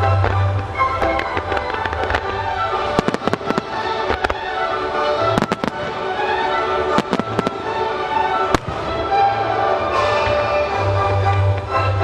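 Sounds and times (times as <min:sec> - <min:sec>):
music: 0:00.0 - 0:12.0.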